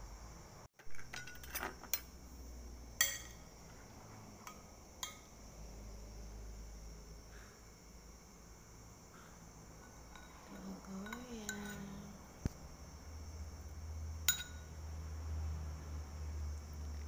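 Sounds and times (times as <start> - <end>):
utensil clinking ceramic bowl: 3.0 - 3.4, 9.8 - 12.1, 14.2 - 14.7.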